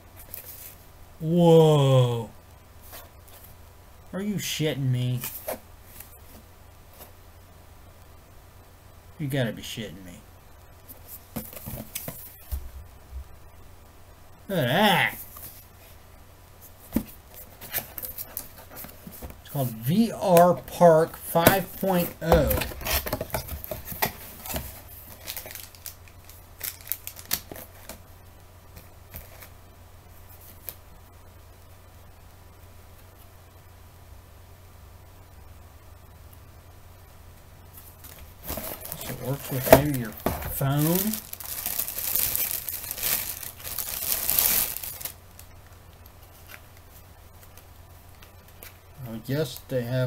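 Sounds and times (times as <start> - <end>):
plastic packaging crinkling: 20.5 - 28.0, 37.8 - 47.6
cardboard box handling: 38.4 - 45.1.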